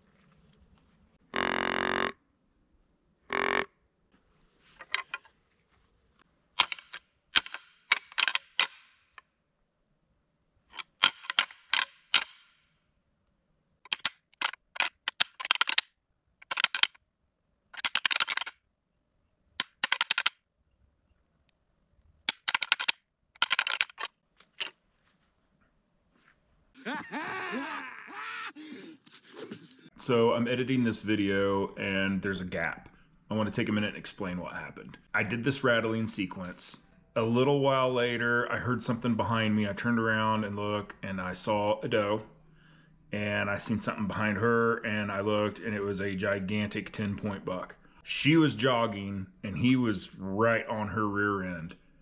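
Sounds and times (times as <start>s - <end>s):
short pitched deer call: 1.3s - 2.2s
antlers clashing and clacking: 6.6s - 9.0s, 10.7s - 12.6s, 13.9s - 15.8s, 16.4s - 17.0s, 17.8s - 18.6s, 19.6s - 20.4s, 22.3s - 24.8s.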